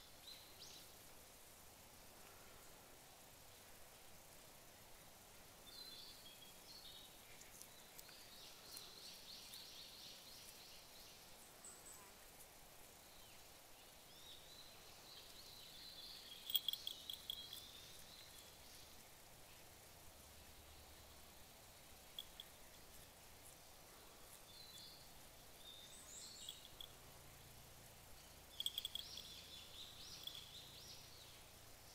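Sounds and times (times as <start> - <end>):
faint high chirping calls: 13.1 - 19.8, 20.5 - 23.0, 23.8 - 31.9.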